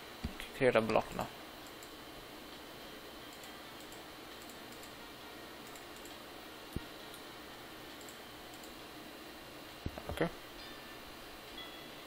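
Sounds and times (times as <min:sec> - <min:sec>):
keyboard and mouse clicks: 0:03.3 - 0:05.0, 0:05.6 - 0:06.2, 0:07.9 - 0:08.8.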